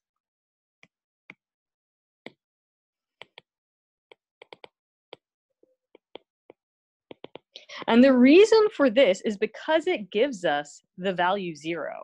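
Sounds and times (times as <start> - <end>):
stylus tapping on tablet screen: 3.2 - 3.5, 4.1 - 5.3, 5.9 - 7.9.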